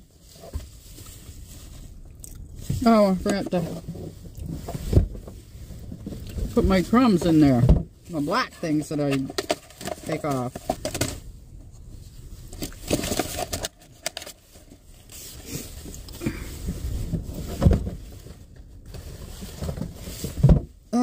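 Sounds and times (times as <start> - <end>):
food packaging rustling: 8.4 - 11.2, 12.1 - 20.4.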